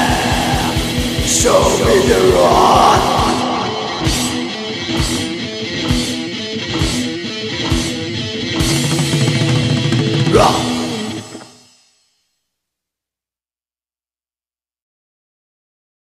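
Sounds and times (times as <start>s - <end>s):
distorted electric guitar riff: 0.0s - 11.8s
drums: 0.0s - 12.0s.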